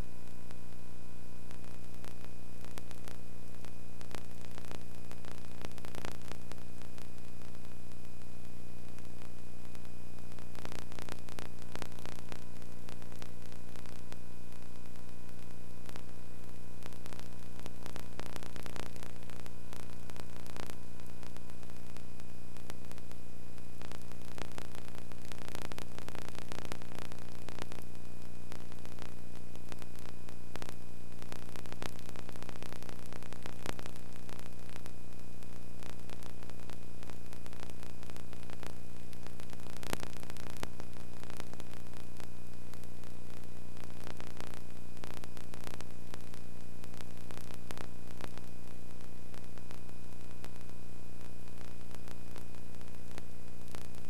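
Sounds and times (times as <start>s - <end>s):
electrical hum: 0.0s - 54.0s
faint clicks: 1.5s - 54.0s.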